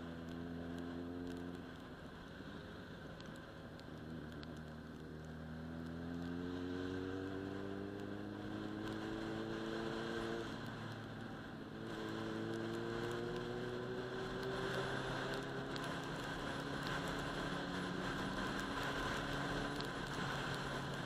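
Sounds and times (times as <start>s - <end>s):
motorcycle engine accelerating: 4.1s - 21.0s
steady rush of noise: 8.8s - 21.0s.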